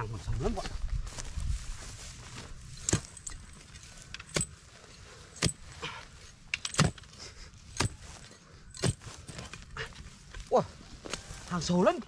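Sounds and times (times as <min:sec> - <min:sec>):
hoe chopping into earth: 0:02.8 - 0:03.2, 0:06.6 - 0:07.0, 0:08.8 - 0:09.6.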